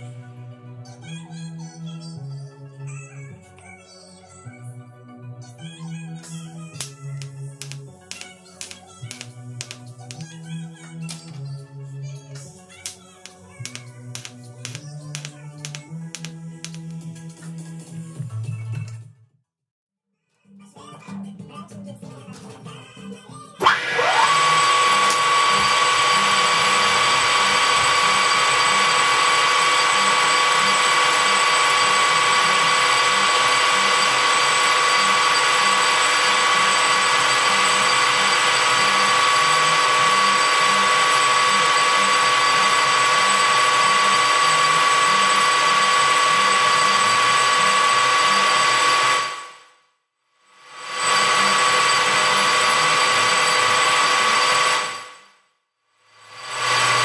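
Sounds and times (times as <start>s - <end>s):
metal lathe motor whine: 23.6s - 49.6s, 50.7s - 55.2s, 56.2s - 57.0s.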